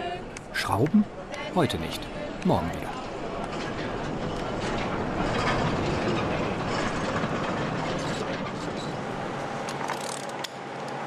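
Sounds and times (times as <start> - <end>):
sliding door rumbling on track: 3.0 - 9.3.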